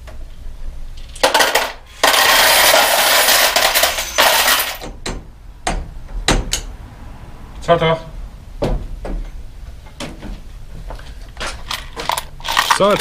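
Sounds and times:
single knocks: 0:08.6 - 0:11.0
small parts clattering in plastic box: 0:11.4 - 0:13.0.

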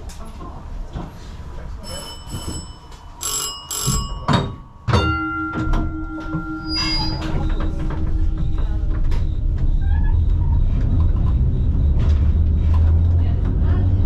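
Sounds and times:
tram running rumble: 0:00.0 - 0:14.0
tram bell ringing: 0:01.8 - 0:09.8.

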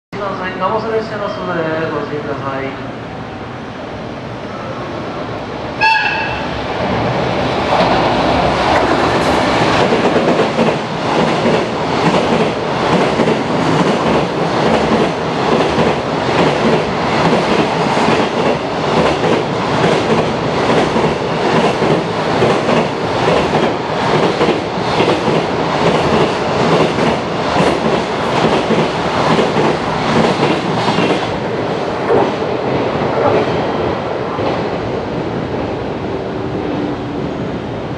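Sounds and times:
train horn blast: 0:05.8 - 0:06.5
train wheels clattering on rails: 0:07.7 - 0:33.7.

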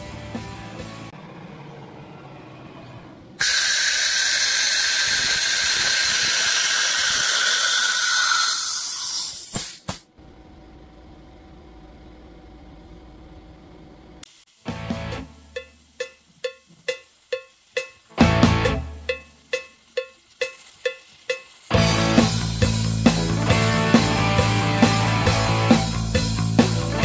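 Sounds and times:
compressed air hissing: 0:03.4 - 0:10.1.

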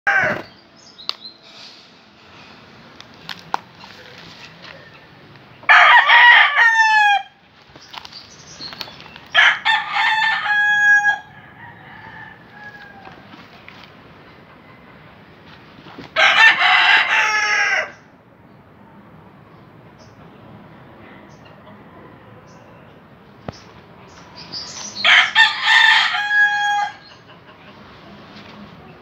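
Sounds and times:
rooster crowing: 0:00.1 - 0:00.5, 0:05.7 - 0:07.4, 0:09.4 - 0:13.4, 0:16.2 - 0:18.0, 0:25.0 - 0:27.2.

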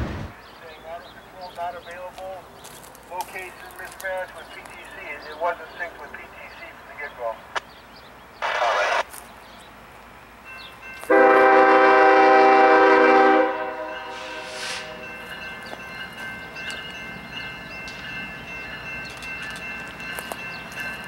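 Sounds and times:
train running noise: 0:00.0 - 0:21.0
locomotive air horn: 0:11.1 - 0:15.0.

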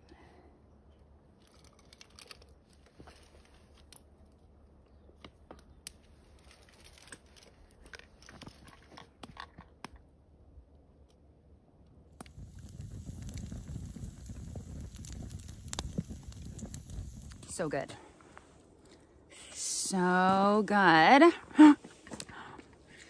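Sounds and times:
wood fire crackling: 0:01.4 - 0:08.8, 0:11.8 - 0:23.0
fire popping: 0:12.0 - 0:22.5
firewood laid on fire: 0:12.2 - 0:19.0.

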